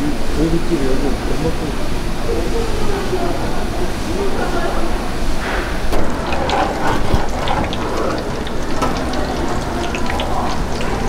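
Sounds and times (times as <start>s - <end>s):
food sizzling in hot oil: 5.7s - 11.0s.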